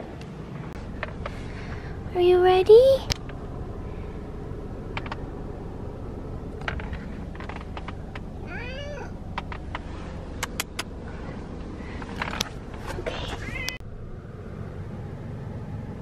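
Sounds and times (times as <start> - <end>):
low rumble inside car: 0.0 - 16.0
sharp clicks: 3.0 - 3.4, 4.9 - 5.3, 6.5 - 8.3, 9.3 - 11.0
cat meowing: 8.4 - 9.2, 13.2 - 13.8.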